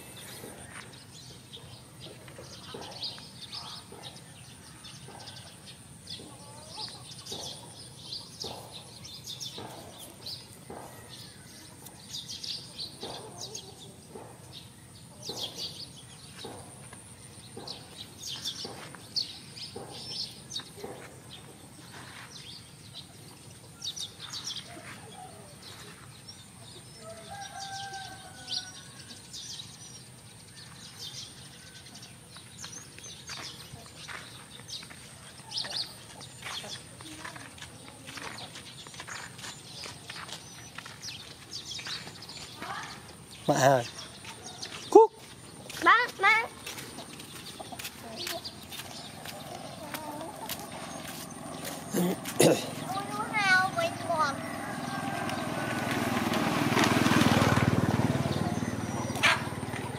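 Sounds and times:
small birds chirping: 0.0s - 59.9s
chickens clucking: 5.0s - 8.8s, 9.4s - 12.0s, 12.9s - 14.5s, 43.5s - 54.0s, 54.8s - 59.9s.

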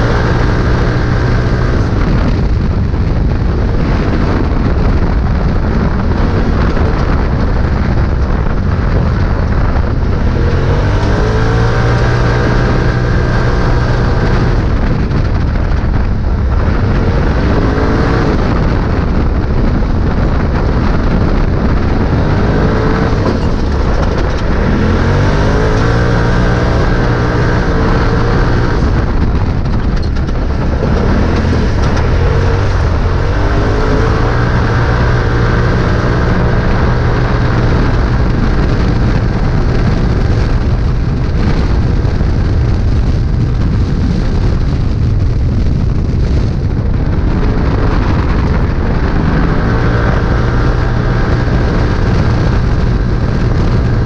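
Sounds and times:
off-road vehicle engine revving: 0.0s - 43.2s, 46.2s - 54.0s
constant rushing noise: 0.0s - 54.0s.

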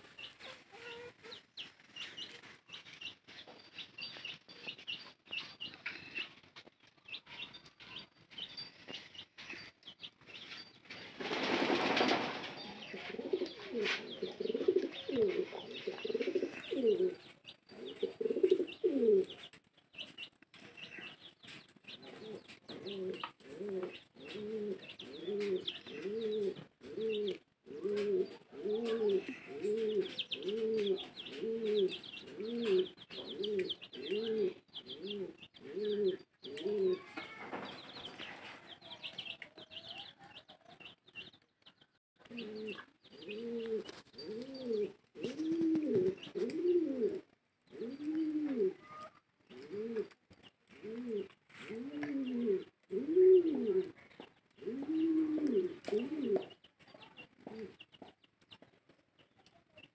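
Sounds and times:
pigeon cooing: 12.0s - 19.5s, 21.9s - 37.4s, 42.2s - 56.6s.

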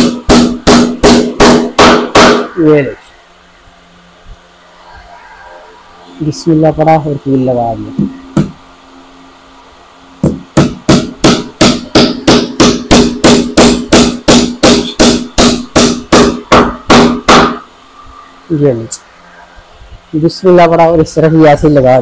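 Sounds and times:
hammer striking nail into wood: 0.0s - 2.5s, 10.2s - 17.6s.

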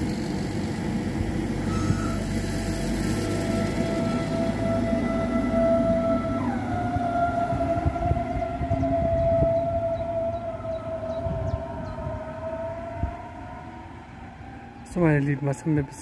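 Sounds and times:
electric train traction whine: 0.0s - 16.0s
wheels rumbling on rails: 0.0s - 16.0s.

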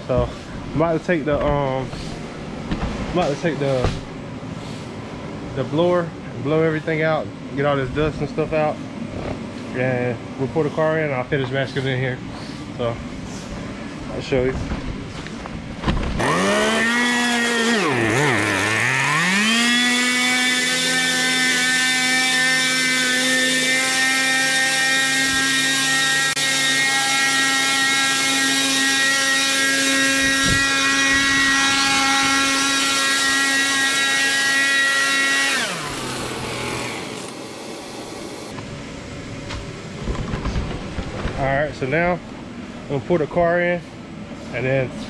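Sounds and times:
leaf blower whining: 16.1s - 38.6s.

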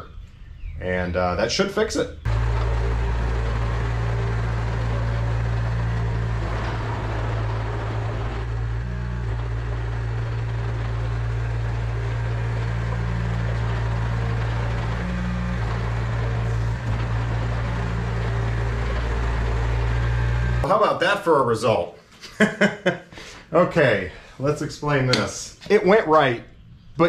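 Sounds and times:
diesel engine running: 2.2s - 20.8s.

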